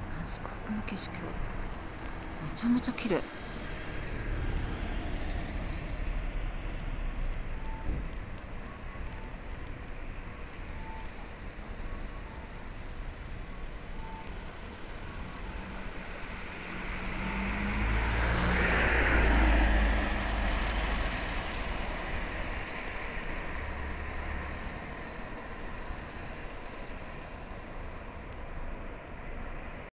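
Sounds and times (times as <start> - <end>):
traffic hum: 0.0 - 29.9
car driving past: 2.2 - 6.6, 15.8 - 25.1.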